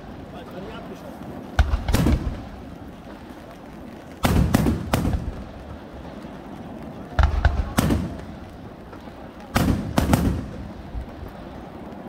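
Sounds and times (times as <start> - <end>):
firework shells bursting: 1.4 - 6.4, 7.2 - 11.5.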